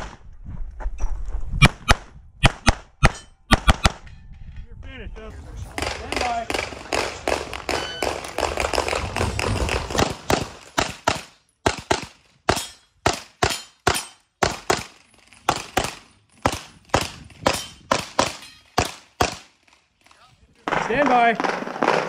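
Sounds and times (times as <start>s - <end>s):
pistol shots: 5.6s - 14.9s.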